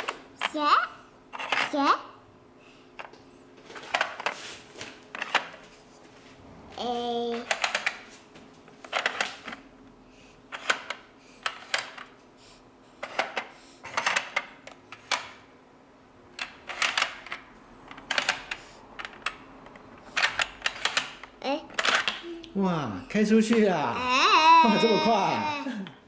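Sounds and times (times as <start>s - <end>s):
plastic puzzle pieces clacking: 8.9s - 9.6s.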